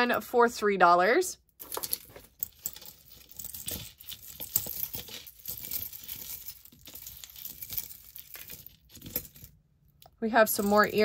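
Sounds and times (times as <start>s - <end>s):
metal jewelry chains clinking: 1.6s - 9.6s, 10.5s - 11.0s.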